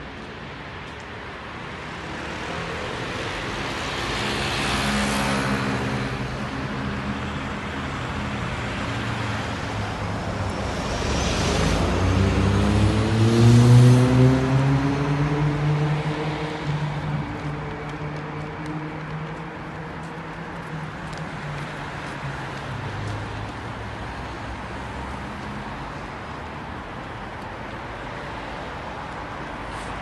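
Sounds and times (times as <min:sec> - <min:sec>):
vehicles passing: 0:00.0 - 0:30.0
engines accelerating: 0:09.8 - 0:23.5.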